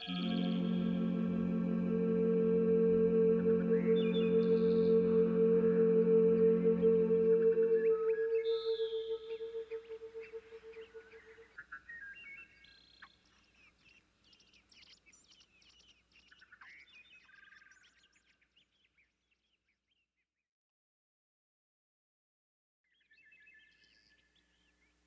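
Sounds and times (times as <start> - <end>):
held ambient music tone: 0.0 - 11.5
faint birds chirping: 0.0 - 20.1.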